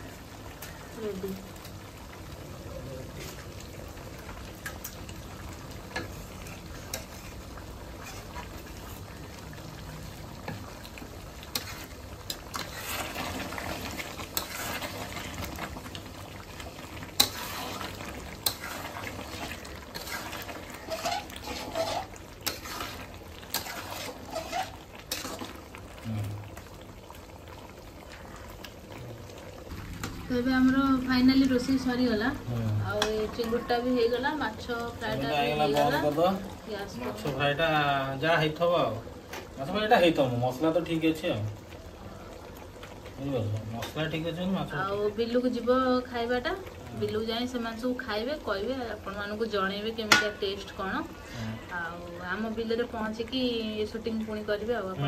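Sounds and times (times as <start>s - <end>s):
curry bubbling in a pan: 0.0s - 55.0s
spoon scraping a pan: 5.9s - 9.0s, 11.5s - 15.7s, 17.1s - 25.5s.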